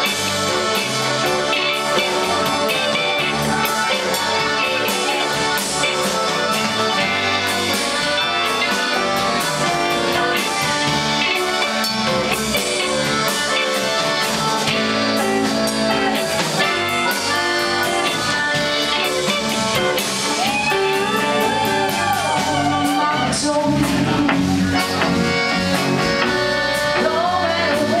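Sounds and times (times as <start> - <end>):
accordion: 0.0 - 20.4, 23.5 - 28.0
bass: 0.0 - 28.0
drum kit: 0.0 - 28.0
electric guitars: 0.0 - 28.0
woman singing: 2.6 - 10.5, 20.4 - 24.7, 26.9 - 28.0.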